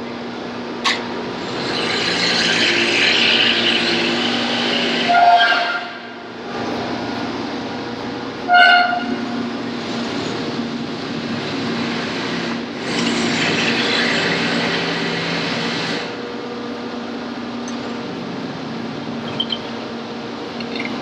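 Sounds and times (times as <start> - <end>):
grinder machine hum: 0.0 - 21.0
hissing grind of blade on wheel: 1.2 - 5.7, 9.6 - 16.2
high squeal: 1.5 - 6.1, 19.2 - 19.7.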